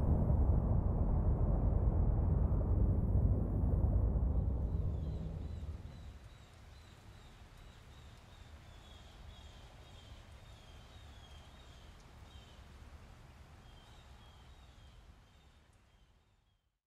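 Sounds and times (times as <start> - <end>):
low steady rumble: 0.0 - 6.6.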